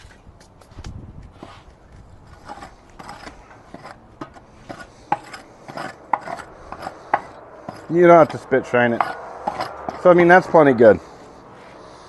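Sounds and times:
scraping inside metal bowl: 0:02.2 - 0:10.1.

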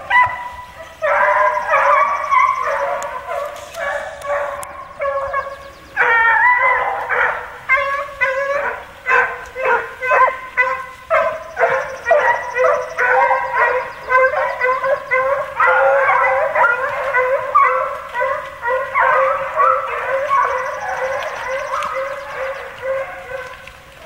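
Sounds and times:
hounds baying: 0:00.0 - 0:24.0.

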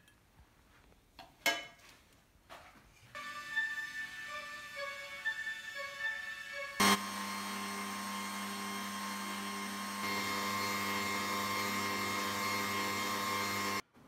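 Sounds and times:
stand mixer motor whirring: 0:06.7 - 0:13.8.

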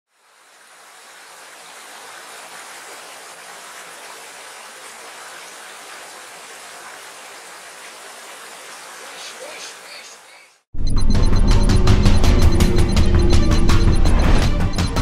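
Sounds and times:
stream rushing over rocks: 0:00.1 - 0:10.3.

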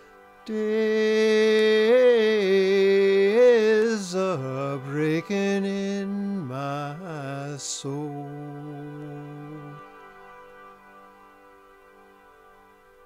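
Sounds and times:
man singing solo: 0:00.4 - 0:09.9.

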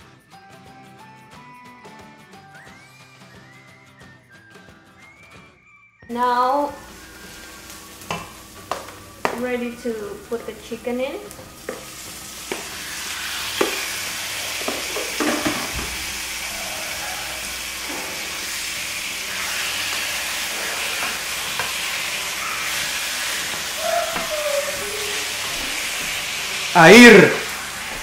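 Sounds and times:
chicken sizzling in frying pan: 0:06.7 - 0:28.0.

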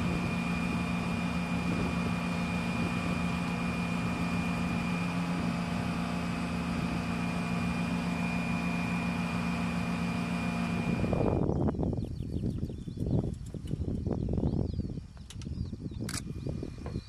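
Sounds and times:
gusty low buffeting: 0:00.0 - 0:17.0
machine humming with high whine: 0:00.0 - 0:17.0.

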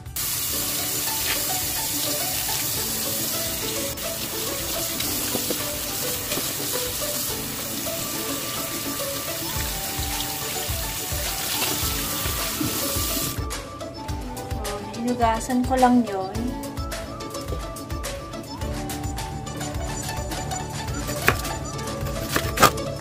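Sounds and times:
background music: 0:00.0 - 0:23.0
tap running into steel sink: 0:03.7 - 0:13.4.

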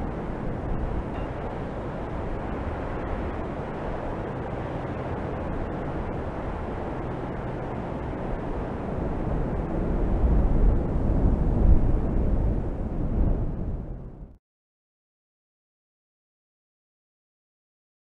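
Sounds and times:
low rumbling: 0:00.0 - 0:14.4.

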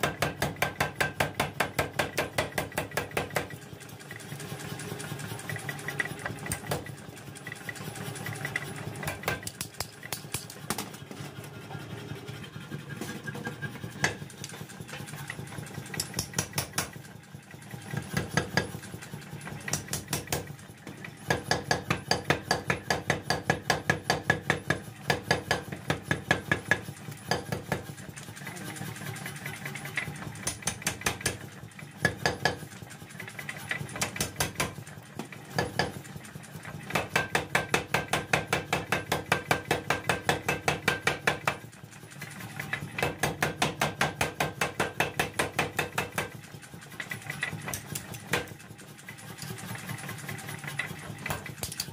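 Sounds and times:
power hammer striking steel: 0:00.0 - 0:03.6, 0:06.2 - 0:06.9, 0:09.0 - 0:10.9, 0:15.9 - 0:17.1, 0:18.0 - 0:18.8, 0:19.5 - 0:20.5, 0:21.2 - 0:27.9, 0:30.4 - 0:32.7, 0:33.9 - 0:34.8, 0:35.5 - 0:36.0, 0:36.9 - 0:41.6, 0:43.0 - 0:46.4.

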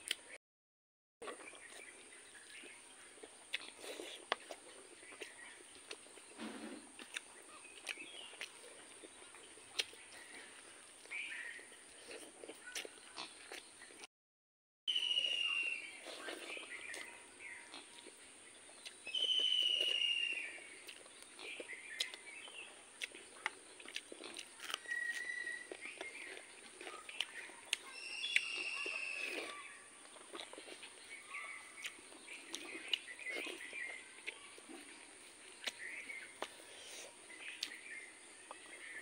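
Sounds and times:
chewing and lip smacking: 0:01.2 - 0:06.3, 0:07.0 - 0:14.1, 0:15.2 - 0:39.0
bird whistling call: 0:14.9 - 0:15.9, 0:19.1 - 0:20.6, 0:24.8 - 0:25.7, 0:27.9 - 0:29.6.

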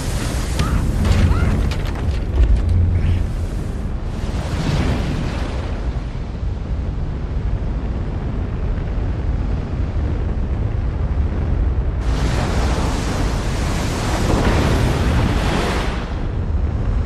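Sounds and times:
deep rumble of water: 0:00.0 - 0:17.0
rush of churning water: 0:12.0 - 0:16.8.

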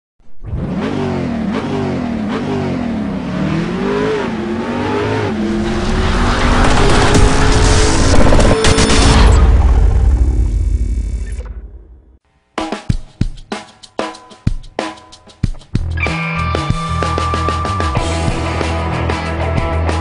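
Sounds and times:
car engine revving: 0:00.4 - 0:12.2.

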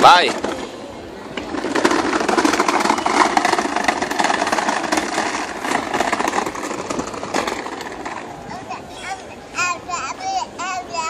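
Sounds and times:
plastic wheels rattling on cobblestones: 0:00.0 - 0:11.0.

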